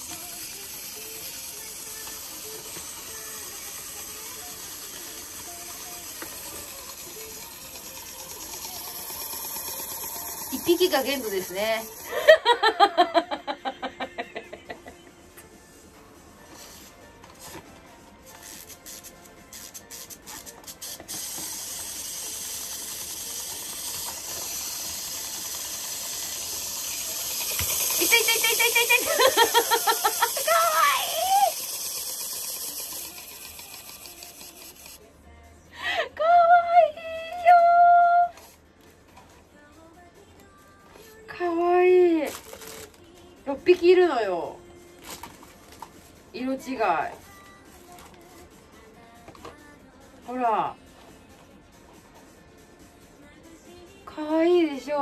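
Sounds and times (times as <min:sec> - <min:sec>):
wind-up toy gears whirring: 0:00.0 - 0:14.8, 0:16.4 - 0:35.0, 0:42.2 - 0:43.0, 0:45.0 - 0:48.2.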